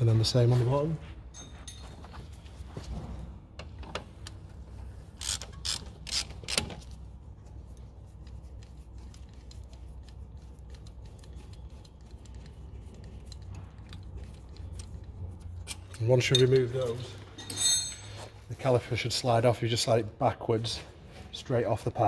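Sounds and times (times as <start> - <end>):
socket ratchet clicking: 5.2 - 6.9.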